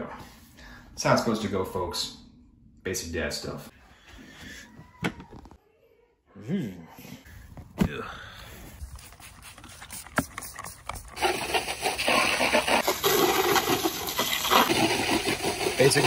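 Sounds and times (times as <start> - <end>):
hose water spraying on plastic: 8.9 - 16.0.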